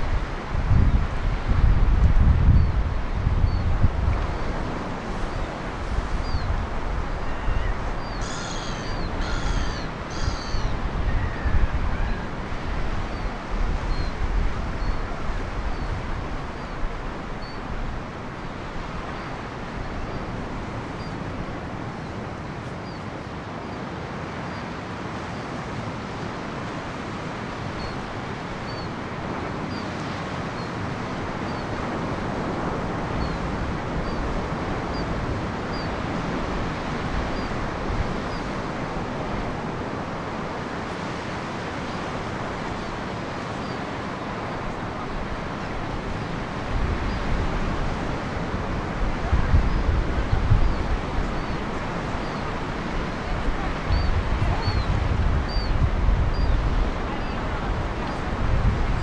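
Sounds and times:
wind buffeting microphone: 0.0s - 23.2s, 25.6s - 59.0s
bird calling: 7.2s - 12.3s
surf breaking on rocky shore: 24.8s - 59.0s.

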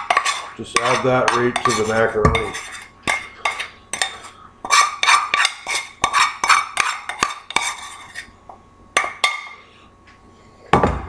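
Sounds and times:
utensil clanking on metal pan: 0.0s - 7.8s.

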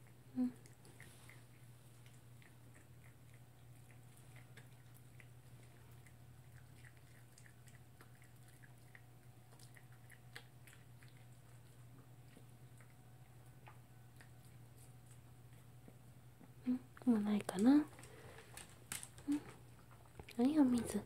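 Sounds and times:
dog chewing with crunching clicks: 0.0s - 16.6s
low steady hum: 0.0s - 21.0s.

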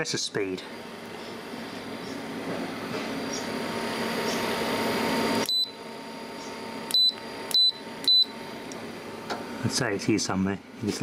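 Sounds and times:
fridge compressor humming: 0.0s - 11.0s
short high beeps: 5.4s - 5.8s, 6.9s - 8.3s.

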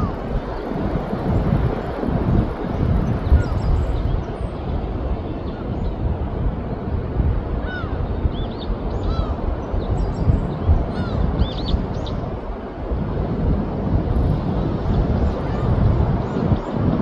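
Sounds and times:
wind: 0.0s - 17.0s
birds calling: 7.6s - 12.2s.

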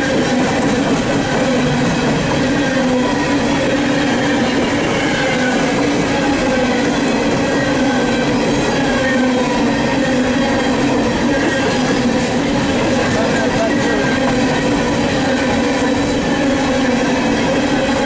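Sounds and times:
steel train wheels on rail: 0.0s - 18.0s.

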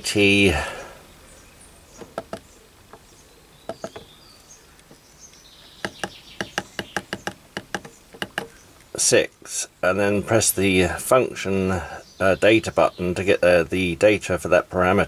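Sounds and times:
keypad buttons clicking: 2.0s - 2.4s, 5.8s - 8.5s.

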